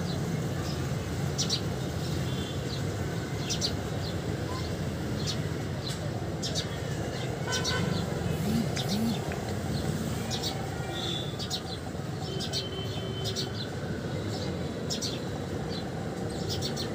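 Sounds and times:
small birds chirping: 7.7s - 11.8s.

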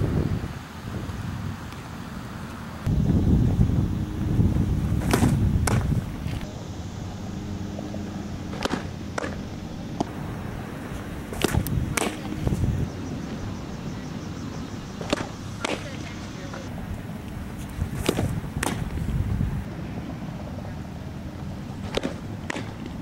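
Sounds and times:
wind rumble on microphone: 0.0s - 23.0s
ball smacking into catcher's mitt: 5.0s - 6.4s, 8.5s - 9.4s, 11.3s - 12.6s, 17.9s - 19.0s, 21.8s - 23.0s.

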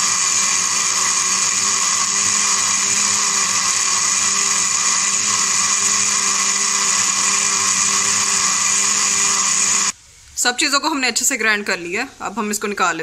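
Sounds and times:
electric blender whining: 0.0s - 10.0s.

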